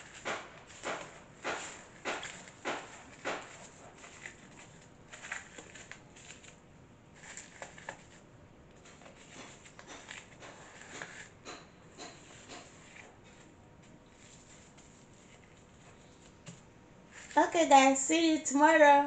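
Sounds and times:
cling film crinkling: 0:00.0 - 0:08.2.

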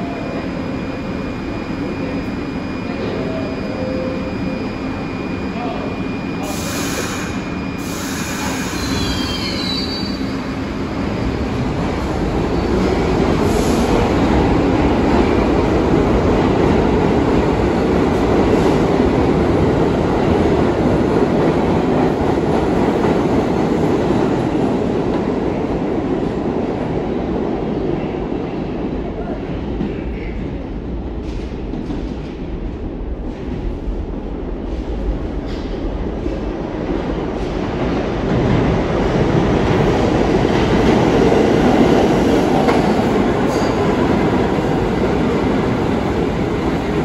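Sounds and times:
subway train rumbling on rails: 0:00.0 - 0:47.0
train wheel squeal: 0:02.0 - 0:10.5.

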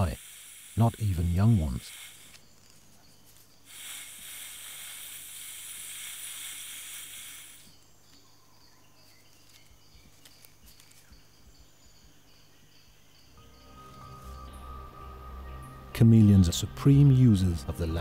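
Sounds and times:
chameleon hissing: 0:00.0 - 0:02.8, 0:03.6 - 0:07.8
faint insect chirps: 0:00.0 - 0:18.0.

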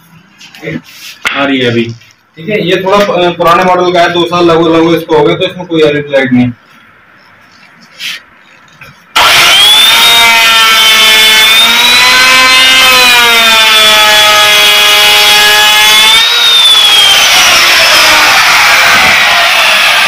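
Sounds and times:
wood router motor whine: 0:09.2 - 0:20.0.

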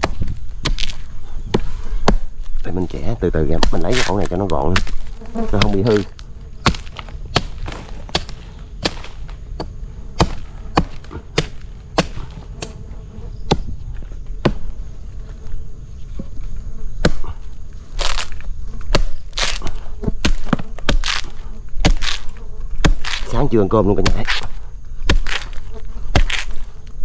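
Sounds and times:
chopping into wood: 0:00.0 - 0:02.3, 0:03.5 - 0:13.8, 0:14.4 - 0:14.7, 0:17.0 - 0:17.4, 0:18.0 - 0:23.4, 0:24.0 - 0:26.7
faint insect buzz: 0:00.0 - 0:27.0.

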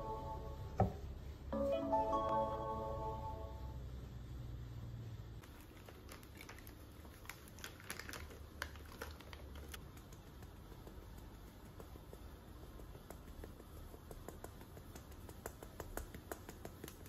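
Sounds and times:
powder ticking through mesh sieve: 0:05.4 - 0:17.0.

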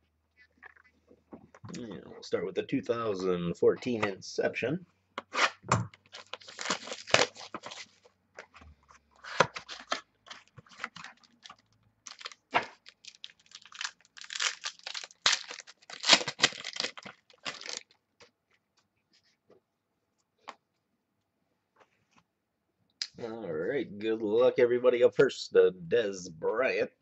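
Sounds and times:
plastic wrapping tearing and crinkling: 0:06.1 - 0:08.0, 0:09.6 - 0:18.0.

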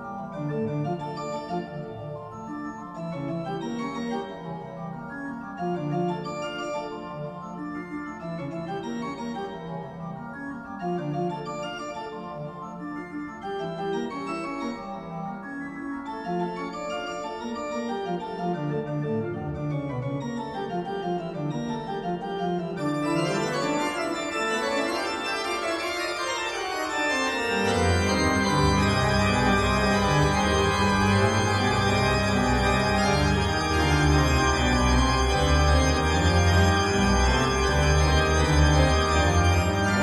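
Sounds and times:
organ music in sustained chords: 0:15.6 - 0:40.0
deep organ bass notes: 0:27.6 - 0:40.0.

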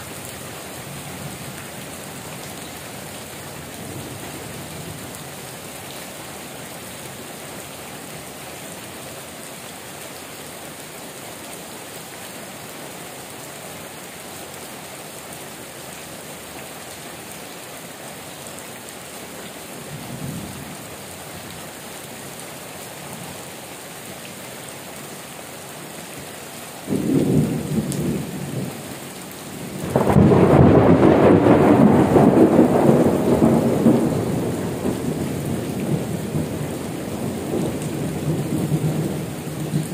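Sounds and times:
heavy rain falling: 0:00.0 - 0:39.9
thunder rumbling: 0:29.6 - 0:39.9
thunder clap: 0:29.9 - 0:34.8.

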